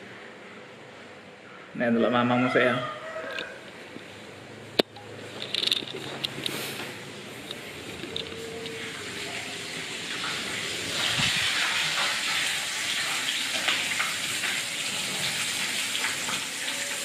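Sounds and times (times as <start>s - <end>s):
tap water running into sink: 8.7s - 17.0s.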